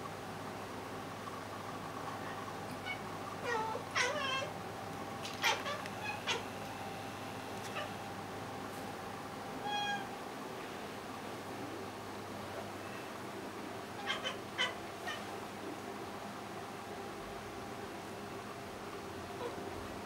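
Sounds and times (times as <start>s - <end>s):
faint steady hum: 0.0s - 20.0s
cats meowing and chirping: 2.3s - 4.6s, 5.2s - 6.5s, 9.6s - 10.1s, 14.0s - 15.3s.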